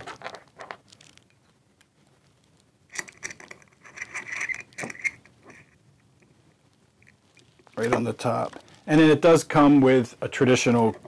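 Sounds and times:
screwdriver turning a screw: 2.9s - 5.6s
small metal clicks: 2.9s - 6.3s
squeaky scraping: 3.8s - 5.8s.

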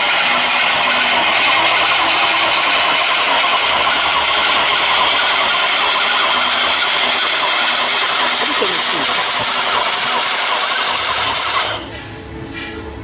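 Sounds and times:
turntable motor hum: 0.0s - 11.8s.

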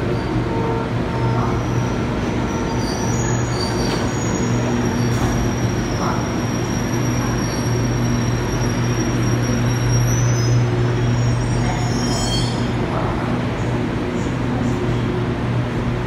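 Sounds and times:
train low hum: 0.0s - 16.0s
train high-pitched whine: 0.1s - 12.8s.

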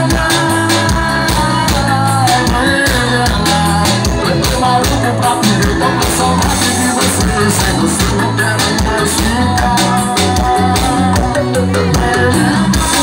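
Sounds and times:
live band music: 0.0s - 13.0s
person singing: 0.0s - 13.0s
steady drum beat: 0.0s - 13.0s.

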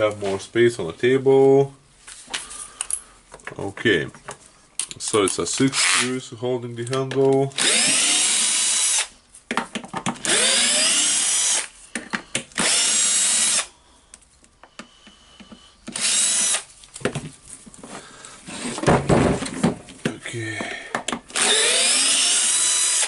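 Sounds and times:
cordless drill whining: 7.6s - 9.1s, 10.2s - 13.8s, 14.8s - 16.7s, 21.3s - 23.0s.

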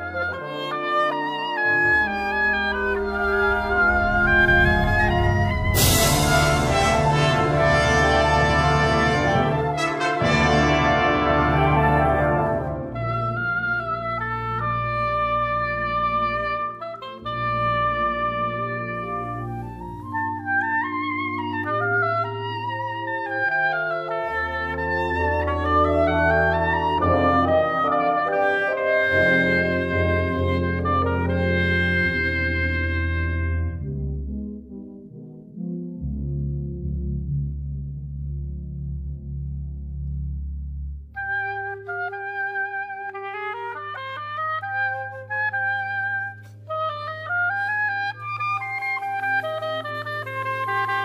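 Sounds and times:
wind band playing film music: 0.0s - 36.1s, 41.1s - 51.0s
woodwind melody: 0.0s - 37.5s, 40.0s - 51.0s
low held accompaniment note: 2.5s - 8.2s.

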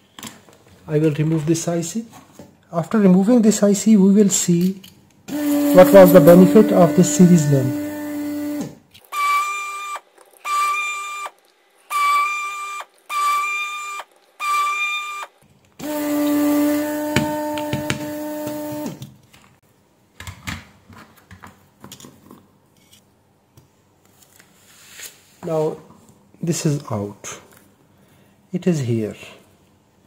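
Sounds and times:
electric whine: 5.3s - 8.7s.

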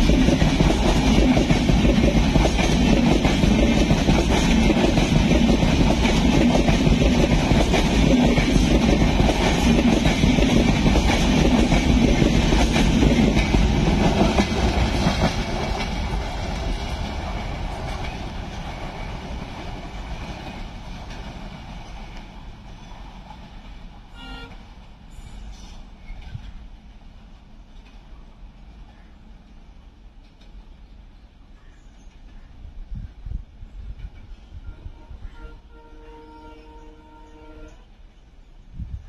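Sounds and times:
train wheels clattering on rails: 0.0s - 28.2s.

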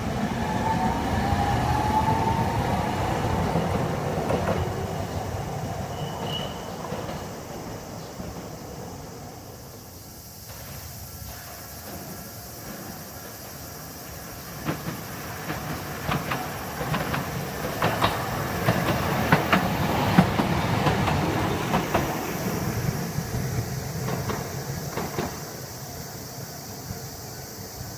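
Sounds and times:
streetcar passing: 0.0s - 27.9s
wheels clicking on rails: 14.0s - 23.0s.

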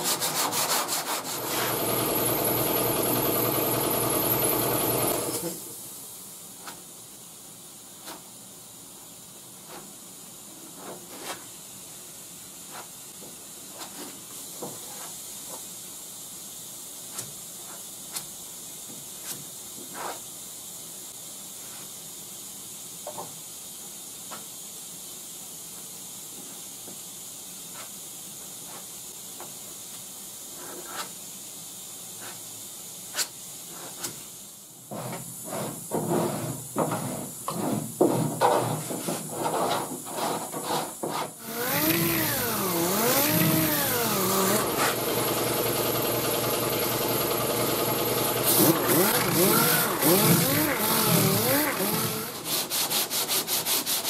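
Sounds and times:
steady hiss: 5.4s - 45.0s, 48.3s - 54.0s
rasp blade shaving filler: 48.5s - 54.0s.

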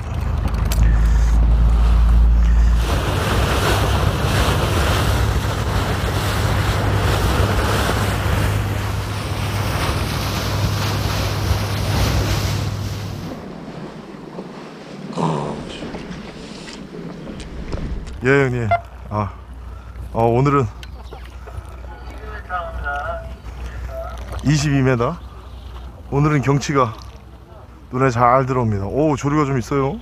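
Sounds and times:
steady low hum: 0.0s - 14.0s
wind buffeting microphone: 0.0s - 27.9s
sea wash: 0.0s - 30.0s.

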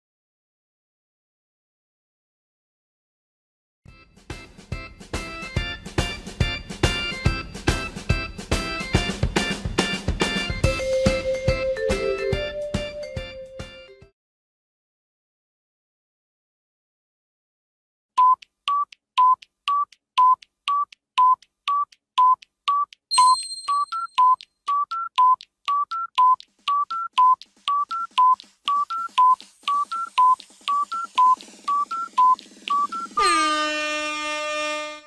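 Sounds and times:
short electronic beeps: 18.2s - 33.5s.

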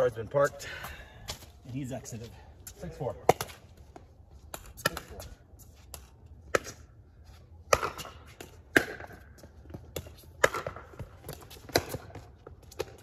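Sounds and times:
paddles striking pickleball: 3.2s - 3.6s, 7.7s - 13.0s
ball bouncing on hard court: 7.7s - 13.0s.

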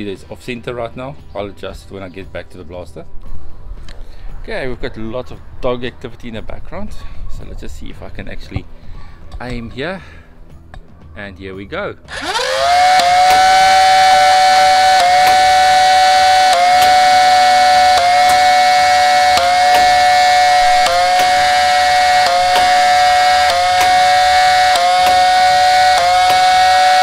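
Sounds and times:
blaster firing click: 12.1s - 27.0s
toy blaster flywheels whining: 12.1s - 27.0s.

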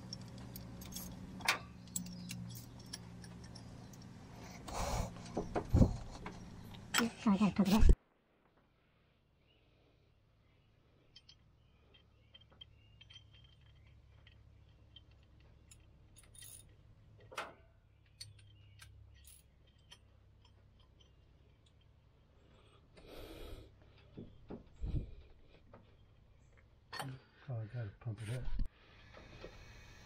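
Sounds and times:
small metal parts clicking: 0.0s - 4.3s, 11.0s - 22.2s.

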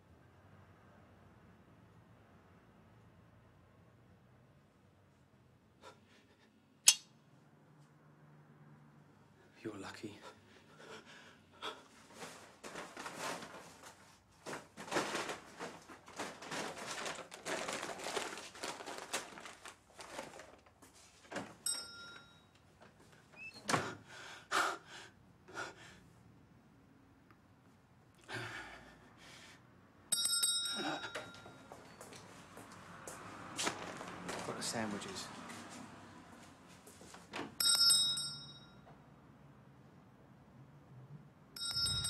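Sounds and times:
knocks and rustling movement: 11.9s - 23.9s, 31.0s - 37.6s
small bell ringing: 21.6s - 22.5s, 30.1s - 32.0s, 37.6s - 38.9s, 41.6s - 42.0s.

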